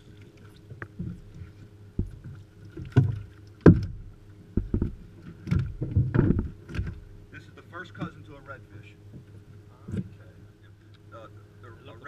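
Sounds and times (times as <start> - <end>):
water splashing against a boat: 0.0 - 12.0
knocks on a boat hull: 2.8 - 7.0.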